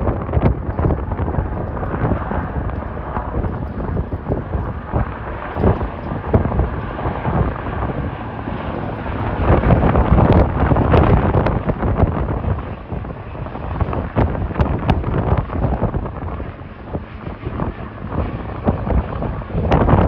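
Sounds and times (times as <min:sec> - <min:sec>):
distant jet engines rumbling: 0:00.0 - 0:20.0
wind buffeting microphone: 0:00.0 - 0:20.0.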